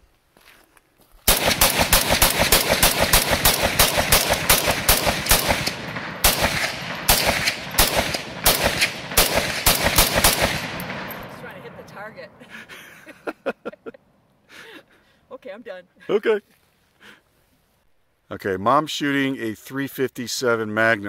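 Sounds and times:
rifle shots: 1.3s - 12.5s.

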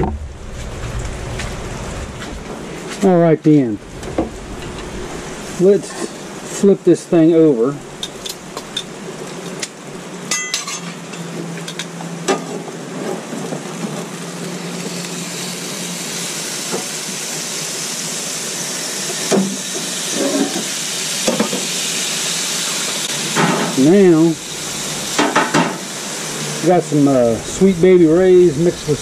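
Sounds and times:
low steady hum: 0.0s - 11.2s
chicken sizzling on a grill: 5.6s - 29.0s
metal utensils clinking on grate: 10.3s - 11.9s.

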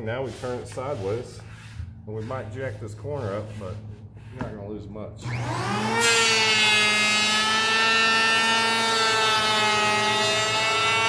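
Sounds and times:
electric planer whining: 5.2s - 11.0s.

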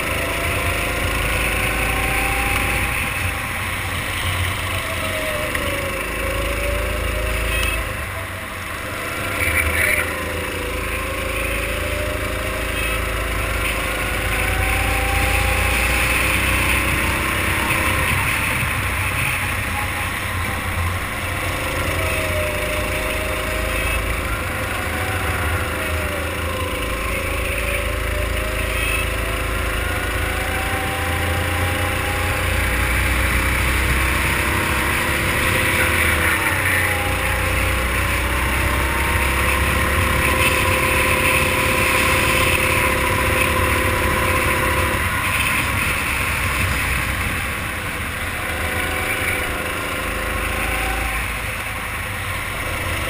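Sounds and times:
kart engine revving: 0.0s - 53.0s.

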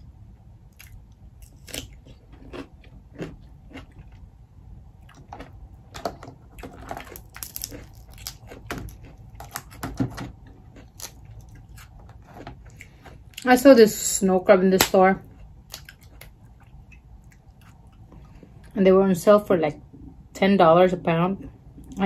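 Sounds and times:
crunching and chewing: 0.6s - 13.5s, 14.9s - 18.8s
crab legs clicking apart: 6.6s - 10.3s.

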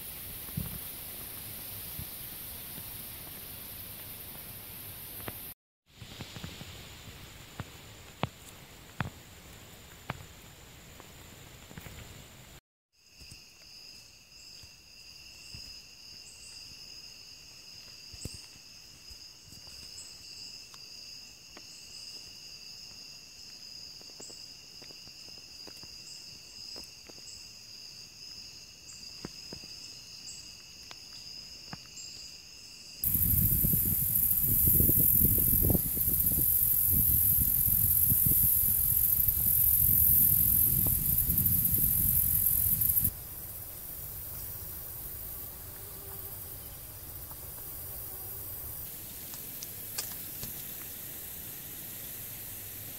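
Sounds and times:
high insect trill: 0.0s - 5.6s, 13.0s - 52.9s
wind rumbling on microphone: 0.0s - 10.4s, 33.0s - 51.1s.

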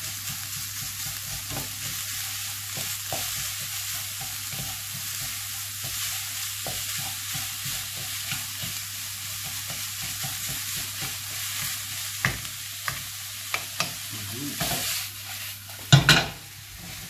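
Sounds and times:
meat frying in a pan: 0.0s - 17.0s
spatula knocking on pan: 9.4s - 11.1s, 15.9s - 16.4s.

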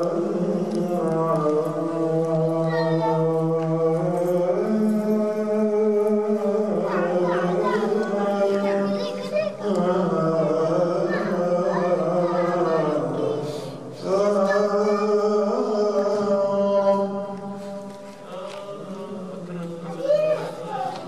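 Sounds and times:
man chanting recitation: 0.0s - 21.0s.

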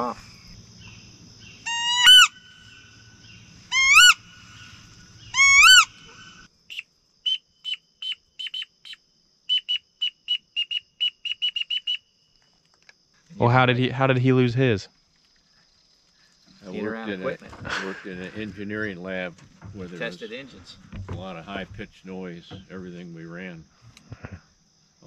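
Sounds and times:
background hiss: 0.0s - 25.0s
short high peeping whistles: 5.3s - 12.1s.

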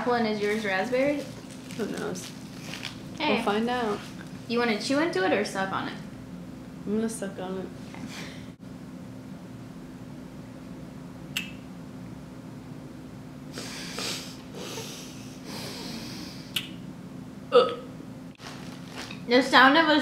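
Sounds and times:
steady low hum: 0.0s - 20.0s
mouth clicks: 11.3s - 11.6s, 16.5s - 16.8s
breathy sucking and puffing: 13.5s - 16.5s.

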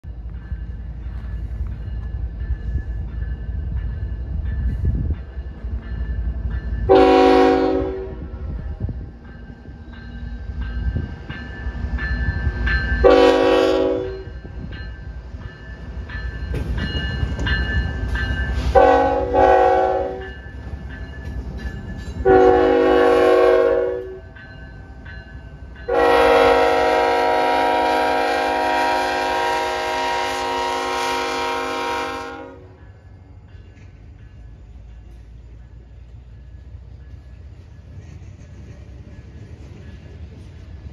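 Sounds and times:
diesel locomotives rumbling past: 0.0s - 40.9s
locomotive air horn blasts: 6.9s - 8.5s, 13.0s - 14.3s, 18.7s - 20.3s, 22.2s - 24.3s, 25.9s - 32.8s.

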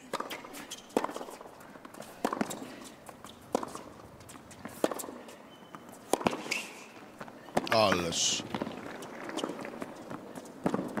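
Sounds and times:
tennis ball struck by rackets: 0.1s - 5.2s, 6.0s - 6.7s, 8.4s - 11.0s.

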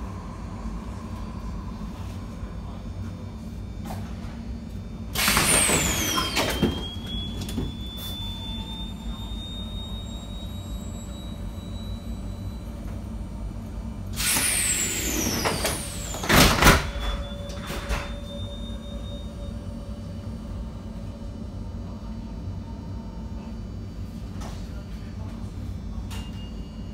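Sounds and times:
tram doors hissing: 5.1s - 20.7s.

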